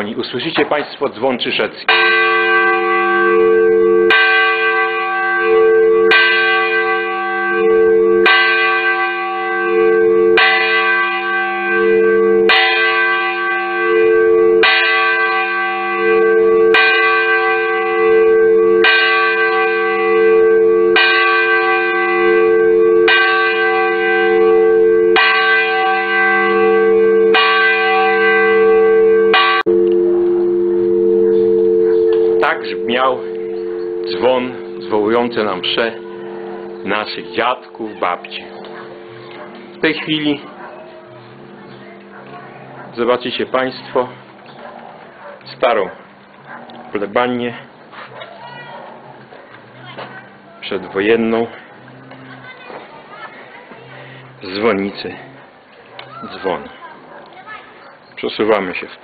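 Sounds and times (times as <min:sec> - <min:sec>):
church bell ringing: 0:00.0 - 0:57.6
low hum: 0:29.2 - 0:43.0.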